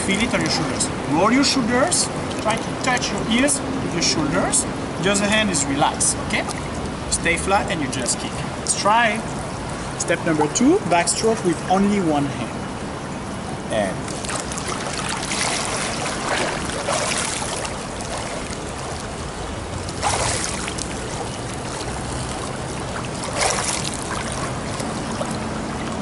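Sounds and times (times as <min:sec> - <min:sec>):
water splashing from swimmer: 0:00.0 - 0:03.6, 0:14.0 - 0:26.0.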